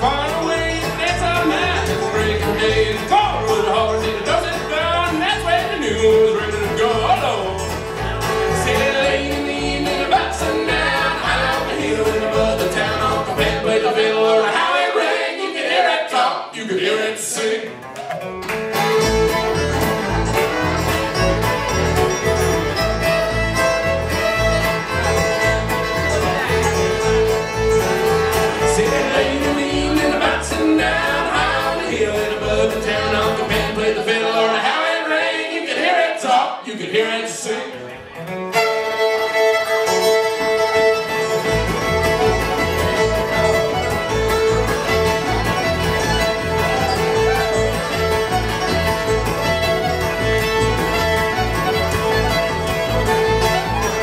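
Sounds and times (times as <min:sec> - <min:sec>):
band singing in harmony: 0:00.0 - 0:07.6, 0:08.4 - 0:17.7, 0:28.3 - 0:37.7
upright bass: 0:00.0 - 0:15.1, 0:17.5 - 0:34.6, 0:37.3 - 0:54.0
fiddle: 0:00.0 - 0:15.2, 0:18.0 - 0:35.1, 0:37.9 - 0:54.0
acoustic guitar: 0:00.0 - 0:16.3, 0:16.9 - 0:36.3, 0:37.0 - 0:54.0
banjo: 0:00.0 - 0:36.2, 0:36.8 - 0:54.0.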